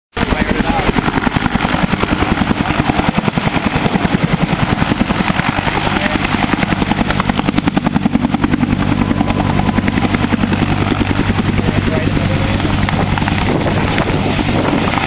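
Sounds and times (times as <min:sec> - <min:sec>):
helicopter rotor beating: 0:00.1 - 0:15.0
turbine rushing: 0:00.1 - 0:15.0.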